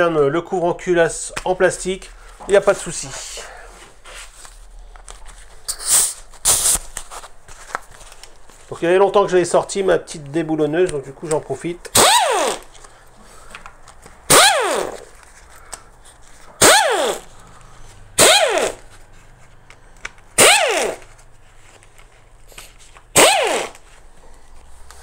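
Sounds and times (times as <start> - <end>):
impact wrench whining and hammering: 11.9 - 12.7, 14.2 - 15.1, 16.6 - 17.3, 18.2 - 18.9, 20.2 - 21.2, 23.1 - 23.9.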